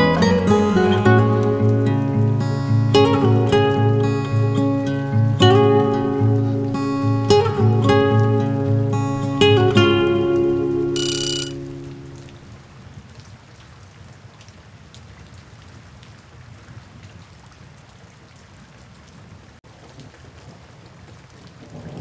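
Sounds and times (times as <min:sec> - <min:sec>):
steady rain falling: 0:00.0 - 0:11.0, 0:11.6 - 0:22.0
guitar chord ringing: 0:00.0 - 0:12.3.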